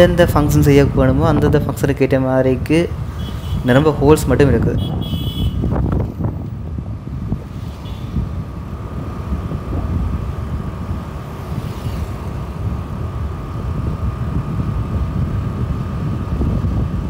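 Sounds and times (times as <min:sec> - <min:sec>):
low road rumble: 0:00.0 - 0:17.0.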